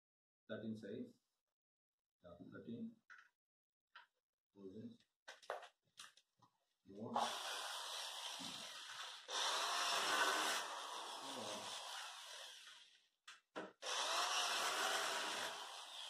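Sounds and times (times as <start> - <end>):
electric drill running: 7.2 - 12.8, 13.8 - 16.0.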